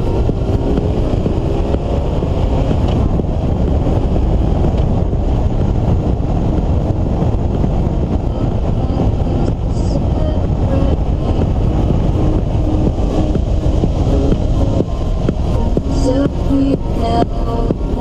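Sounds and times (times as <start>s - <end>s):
car engine and tyre noise: 0.0s - 18.0s
wind rumbling on microphone: 0.0s - 18.0s.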